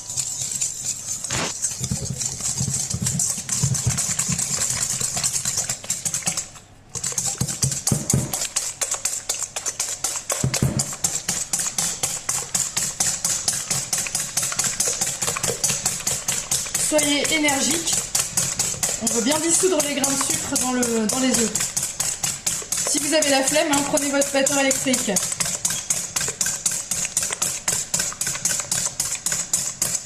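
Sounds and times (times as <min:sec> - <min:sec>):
whisk clicking against metal bowl: 0:00.0 - 0:30.0.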